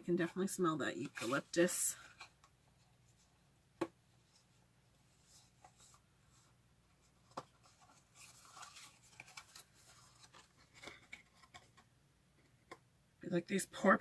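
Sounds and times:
packaging rustling and scraping: 5.2 - 11.9.

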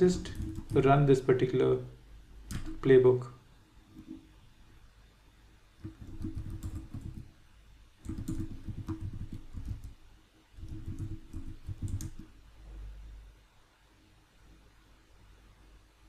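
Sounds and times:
typing on computer keyboard: 0.0 - 0.9, 2.5 - 2.8, 5.8 - 7.3, 8.0 - 10.0, 10.6 - 12.3.

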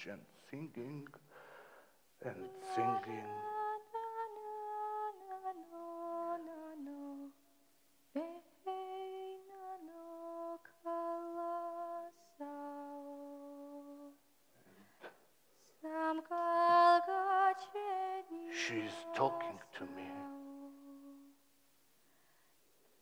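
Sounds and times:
woman singing a lullaby: 2.2 - 7.4, 8.1 - 14.2, 15.6 - 21.4.

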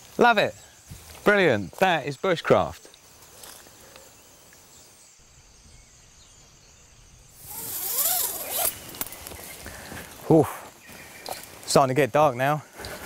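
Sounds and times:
woodland ambience: 0.0 - 13.0
rushing hiss: 7.3 - 11.6.

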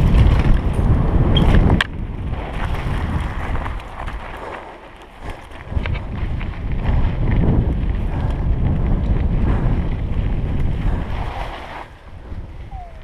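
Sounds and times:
bike rattling: 0.0 - 13.0
wind buffeting microphone: 0.0 - 13.0
tyres crunching on gravel: 1.6 - 8.0.

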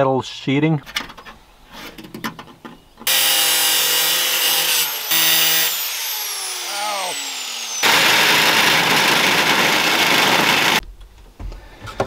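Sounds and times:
angle grinder cutting metal sheeting: 3.1 - 10.8.

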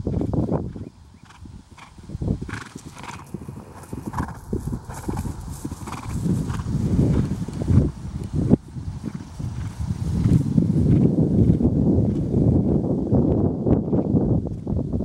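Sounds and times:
horse hoofbeats on grass: 0.0 - 14.9.

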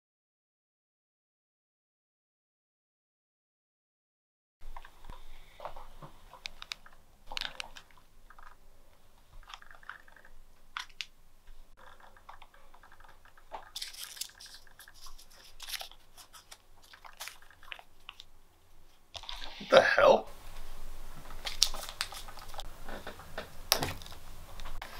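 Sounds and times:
paper crinkling: 6.4 - 8.6, 12.1 - 18.3, 21.2 - 22.7.

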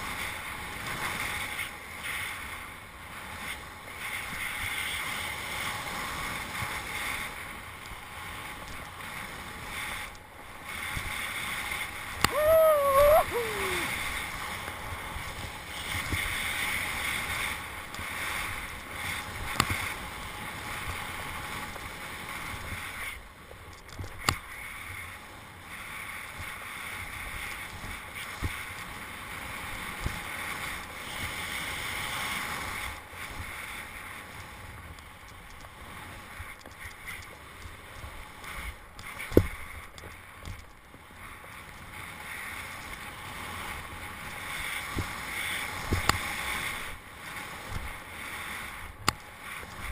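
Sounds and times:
snowboard hissing through snow: 3.2 - 7.4, 8.4 - 23.2, 24.5 - 34.3, 42.0 - 49.9.

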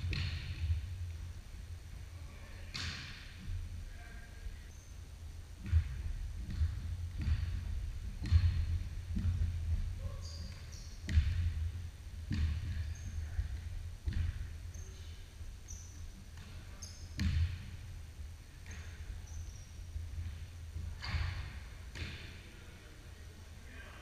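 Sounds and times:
basketball bouncing on hardwood floor: 0.0 - 0.8, 5.6 - 11.7, 12.3 - 14.5, 17.2 - 17.7
sneaker squeaks: 4.7 - 5.0, 10.0 - 11.5, 12.3 - 17.7, 18.5 - 22.3.

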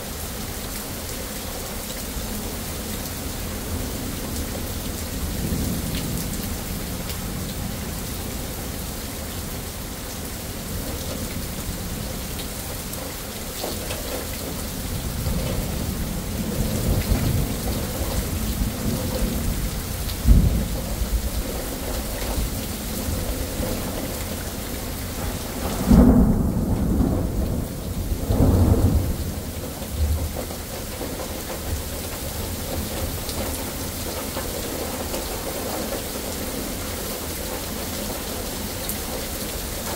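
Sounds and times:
heavy rain: 0.0 - 39.9
thunder rumbles: 3.4 - 9.8, 10.4 - 34.2
sharp thunder crack: 25.3 - 30.3.

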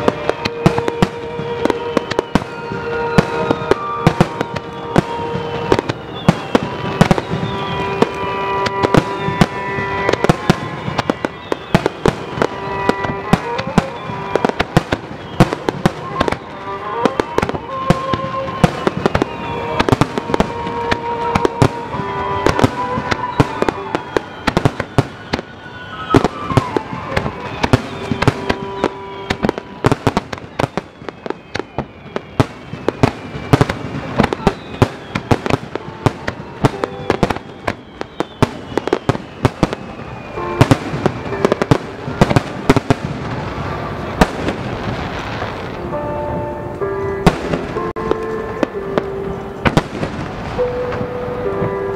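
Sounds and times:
fireworks bangs and crackles: 0.0 - 51.9
background music: 39.5 - 51.9.

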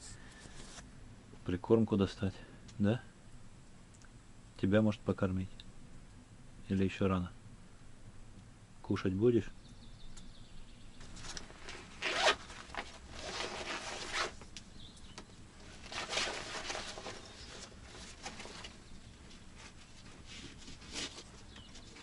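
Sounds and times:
rustling of rucksack fabric: 11.0 - 22.0
zip pulls: 11.6 - 14.4.

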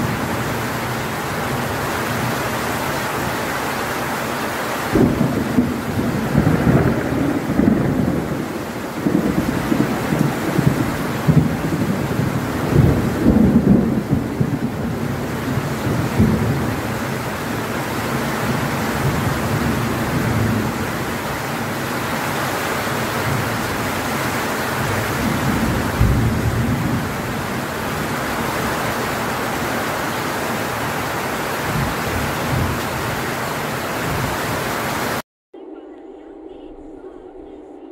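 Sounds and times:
heavy rain on leaves and metal roof: 0.0 - 35.2
low rumbles of thunder: 4.9 - 21.9, 23.0 - 24.1, 24.7 - 29.8, 30.4 - 33.2.

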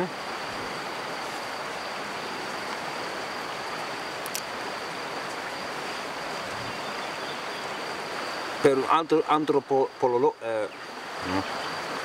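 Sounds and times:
crickets chirring: 0.0 - 12.0.

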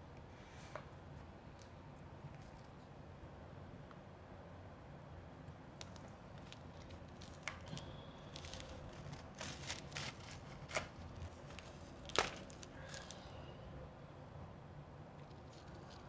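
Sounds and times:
shaved ice crunching: 6.3 - 13.3.

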